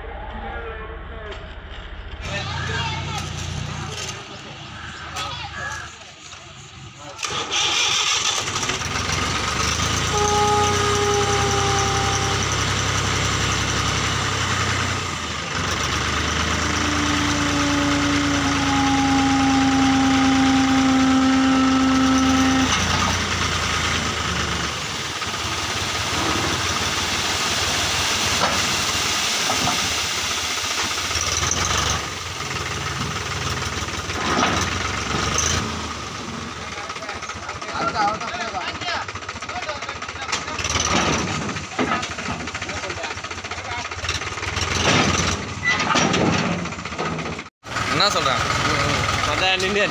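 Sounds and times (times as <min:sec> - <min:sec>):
hydraulic whine: 0:02.2 - 0:39.5
tractor engine running under load: 0:02.3 - 0:49.9.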